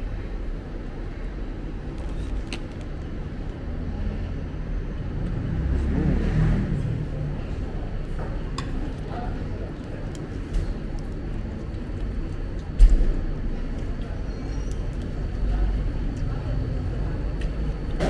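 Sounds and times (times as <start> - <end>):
vehicle engine rumble passing: 3.6 - 9.7.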